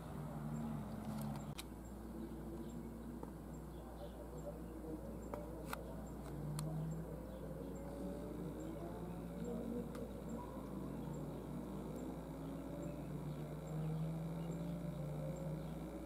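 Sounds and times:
faint low tones: 0.0 - 16.0
low hum: 0.0 - 16.0
sharp clicks: 0.9 - 1.7.

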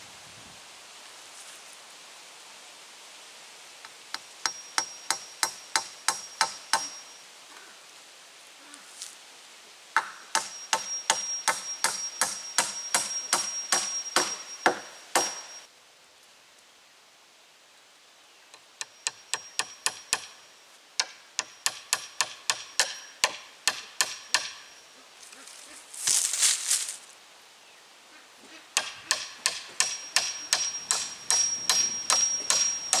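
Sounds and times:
hammer striking nails into wood: 10.0 - 15.5, 21.0 - 24.7, 28.8 - 33.0.

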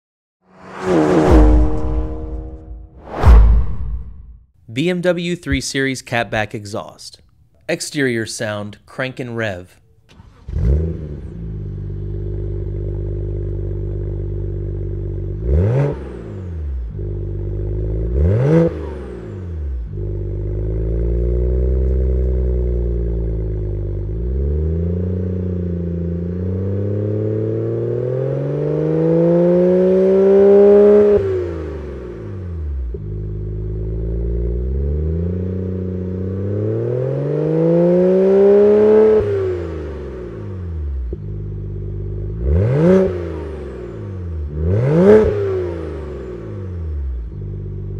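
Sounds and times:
car engine idling and revving: 0.5 - 4.4, 9.9 - 47.9.

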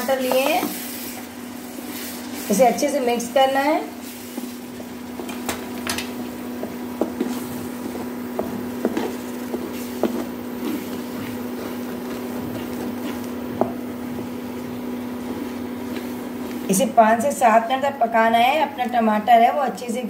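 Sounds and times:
spatula stirring food in a pan: 0.0 - 16.8
steady hum: 0.0 - 20.0.

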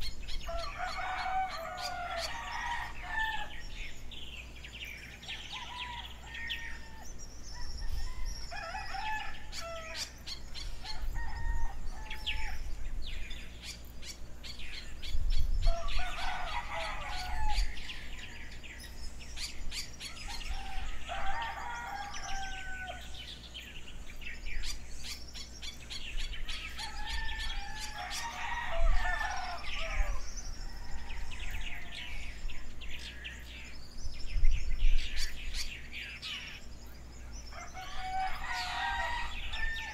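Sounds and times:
small birds chirping: 0.0 - 39.9
rooster crowing: 0.4 - 3.8, 5.2 - 12.7, 15.6 - 18.6, 20.1 - 23.3, 26.5 - 32.5, 37.5 - 39.9.

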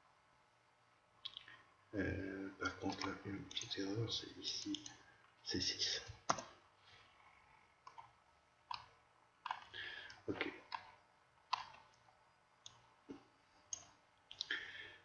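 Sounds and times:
mouse and keyboard clicks: 7.8 - 8.1, 8.7 - 9.7, 10.4 - 12.0.

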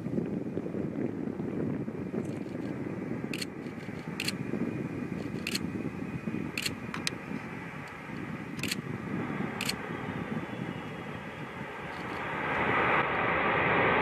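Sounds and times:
jet engines deep rushing noise: 0.0 - 14.0
camera shutters clicking: 3.4 - 4.4, 5.3 - 5.6, 6.6 - 7.1, 8.6 - 8.8.

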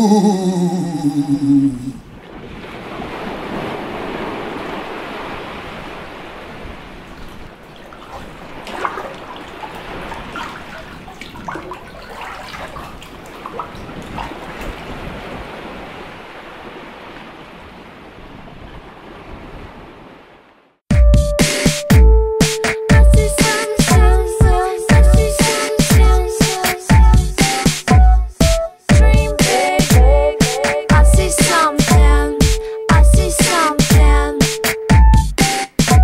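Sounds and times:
sea water lapping: 0.9 - 20.4
small splashes and trickles: 7.1 - 15.2.

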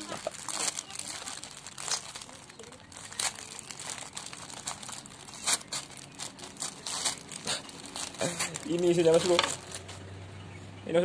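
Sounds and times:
plastic wrapper crinkling and tearing: 0.0 - 10.0.

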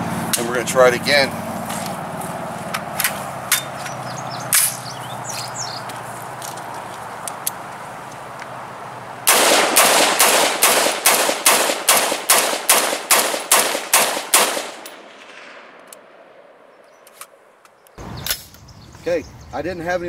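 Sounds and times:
rapid pistol gunshots: 9.3 - 16.6.

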